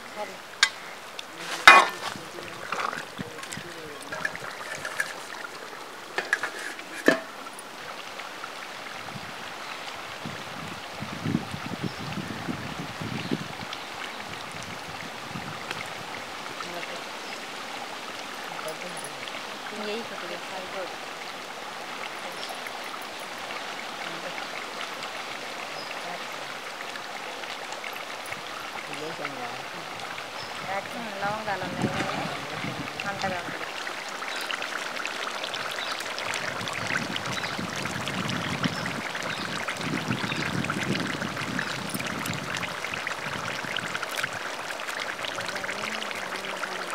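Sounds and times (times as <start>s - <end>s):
curry sizzling and bubbling: 0.0s - 46.9s
steady outdoor hiss: 0.0s - 46.9s
wind rumble on microphone: 8.9s - 16.5s, 29.8s - 33.6s, 36.2s - 44.5s.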